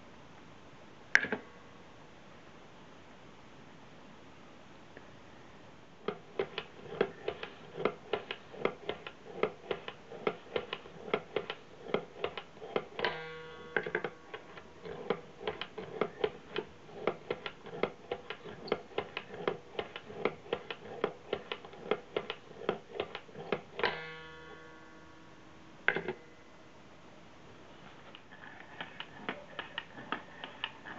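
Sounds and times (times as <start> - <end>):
wooden mechanism clicking: 6.0 - 24.8, 28.0 - 30.9
ringing bong: 12.8 - 16.6, 23.8 - 26.5.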